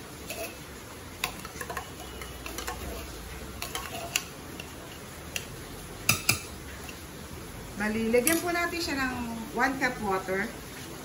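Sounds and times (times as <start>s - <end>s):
metal spoon scraping tin can: 0.2s - 0.6s, 1.3s - 4.8s.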